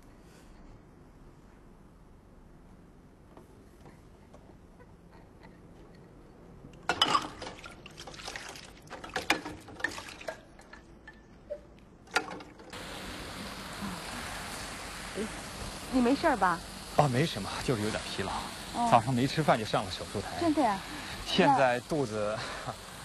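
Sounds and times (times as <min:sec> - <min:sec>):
drinking glass clinking: 0:06.8 - 0:07.7
fountain water jets rushing: 0:12.7 - 0:23.0.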